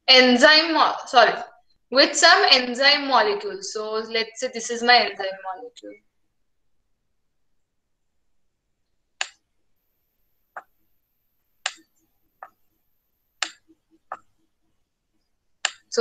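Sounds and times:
computer mouse clicking: 0:09.2 - 0:09.4, 0:11.6 - 0:12.8, 0:13.4 - 0:14.4.

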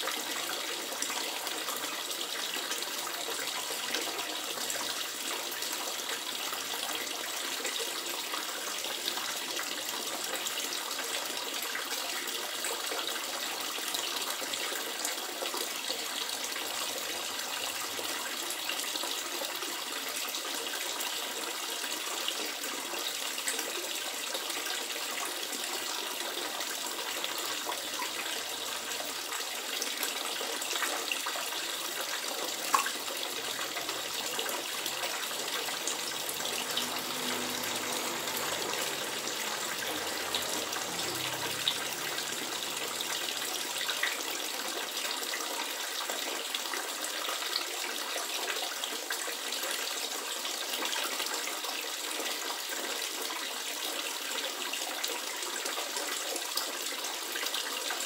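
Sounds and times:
water splashing into pond: 0:27.0 - 0:46.8.

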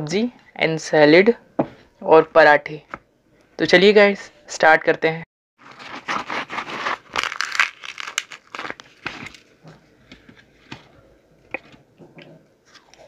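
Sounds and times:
flatbread tearing: 0:05.6 - 0:09.5
fingers picking at food: 0:06.3 - 0:09.3.

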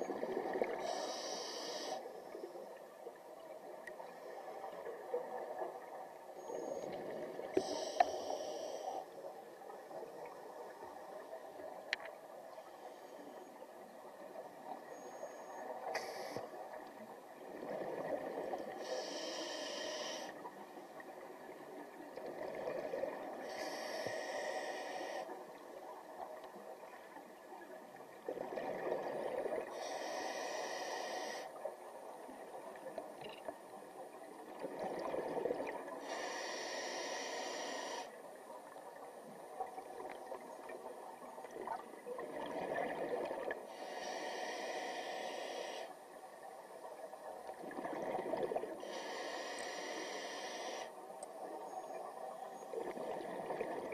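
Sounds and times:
diver breathing through regulator: 0:00.8 - 0:02.1, 0:07.6 - 0:09.1, 0:18.8 - 0:20.4, 0:23.4 - 0:25.3, 0:29.7 - 0:31.5, 0:36.0 - 0:38.1, 0:43.7 - 0:46.0, 0:48.8 - 0:51.0.

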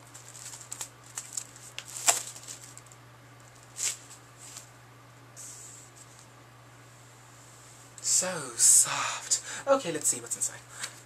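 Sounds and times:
paper and card rustling: 0:00.0 - 0:04.7
faint low hum: 0:00.0 - 0:11.0.

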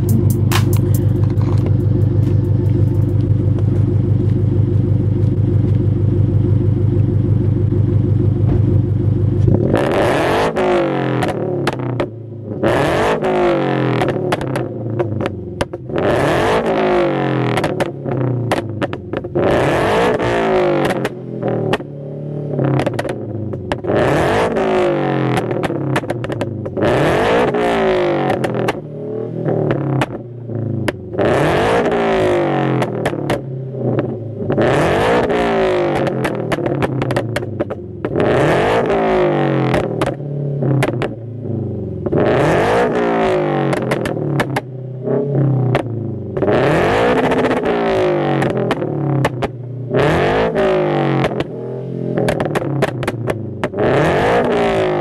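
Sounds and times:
exhaust pops and cracks: 0:00.0 - 0:04.4, 0:35.9 - 0:38.3, 0:40.8 - 0:41.2, 0:43.7 - 0:44.7, 0:48.4 - 0:49.6, 0:52.2 - 0:53.8
car engine revving: 0:00.0 - 0:55.0.

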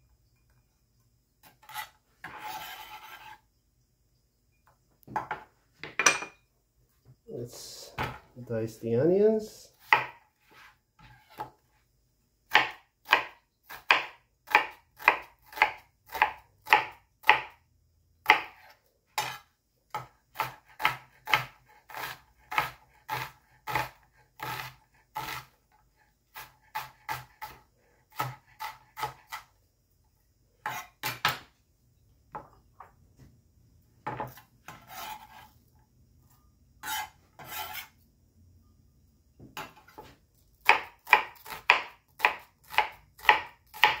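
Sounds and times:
knife chopping on cutting board: 0:09.8 - 0:11.5, 0:12.5 - 0:17.6, 0:18.2 - 0:25.5, 0:26.3 - 0:29.5, 0:30.6 - 0:31.5, 0:39.5 - 0:44.0.

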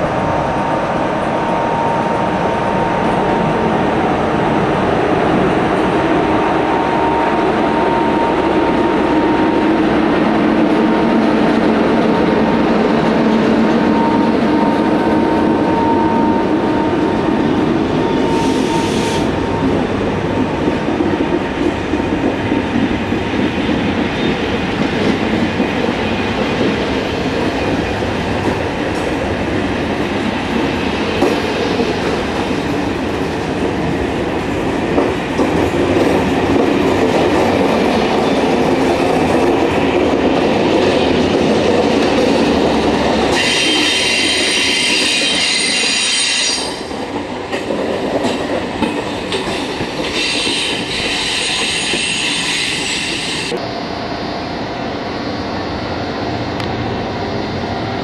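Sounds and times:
train wheels rumbling on rail: 0:00.0 - 0:58.0
high-pitched wheel squeal: 0:18.0 - 0:19.3, 0:43.3 - 0:46.9, 0:50.1 - 0:53.6.

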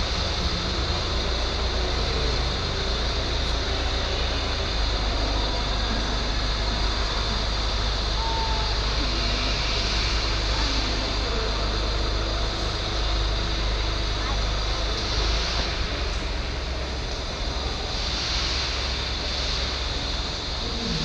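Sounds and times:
faint distant voices: 0:00.0 - 0:21.0
low rumble and hiss: 0:00.0 - 0:21.0.

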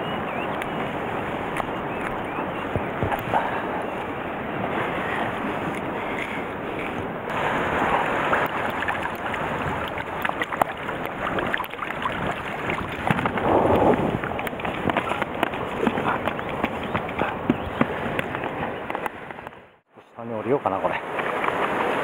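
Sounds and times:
wind buffeting microphone: 0:00.0 - 0:19.8
waves washing on rocky shore: 0:03.0 - 0:16.8.

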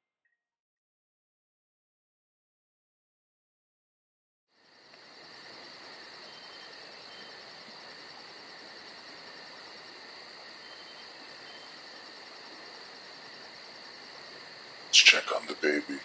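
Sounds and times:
crickets and insects trilling: 0:04.6 - 0:16.0.

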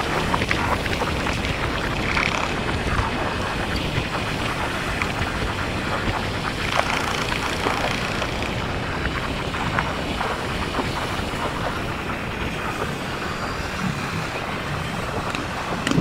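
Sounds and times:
wind rushing on microphone: 0:00.0 - 0:16.0.

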